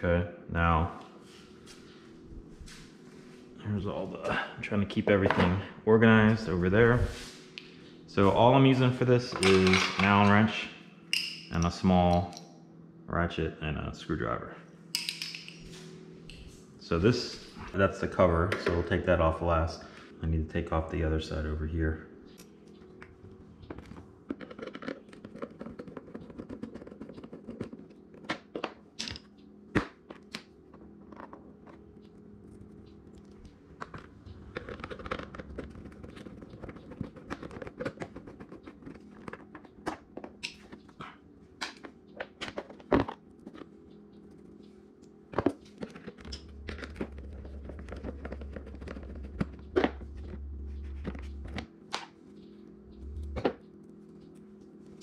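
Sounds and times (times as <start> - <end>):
low hum: 0.0 - 55.0
tools clicking and scraping on plastic: 22.3 - 44.3, 45.3 - 52.6.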